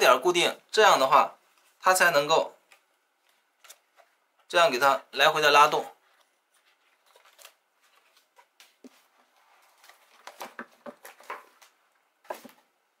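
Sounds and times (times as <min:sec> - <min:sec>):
paper and card rustling: 0:02.6 - 0:04.5, 0:05.6 - 0:12.7.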